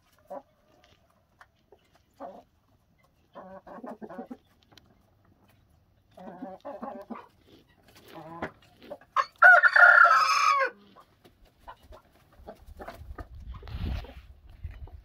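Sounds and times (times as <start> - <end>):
chickens clucking: 0.0 - 15.0
rooster crowing: 9.2 - 10.8.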